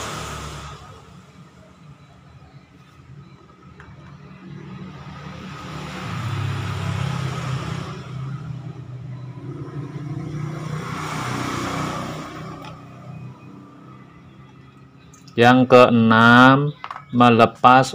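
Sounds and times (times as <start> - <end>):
vehicle passing by: 4.1 - 15.3.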